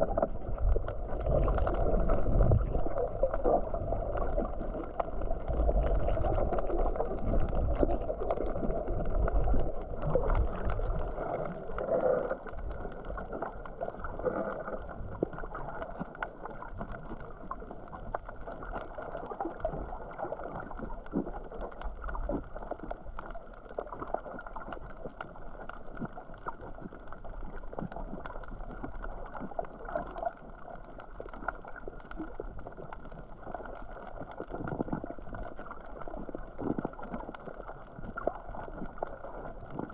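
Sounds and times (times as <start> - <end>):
faint underwater clicks: 0.0 - 39.9
low underwater rumbling: 0.0 - 39.9
underwater wash of water: 0.0 - 39.9.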